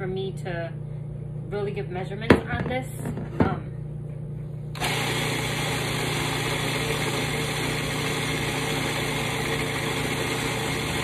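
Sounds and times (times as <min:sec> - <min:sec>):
food processor motor whirring: 0:04.7 - 0:11.0.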